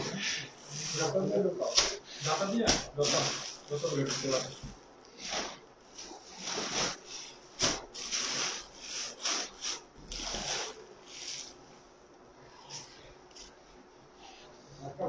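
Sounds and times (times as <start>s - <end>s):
plastic bags rustling: 0.0s - 11.6s.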